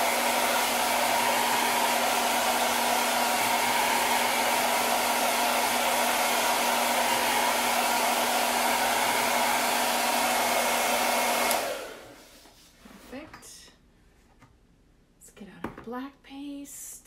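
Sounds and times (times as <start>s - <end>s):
hair dryer blowing air: 0.0s - 12.4s.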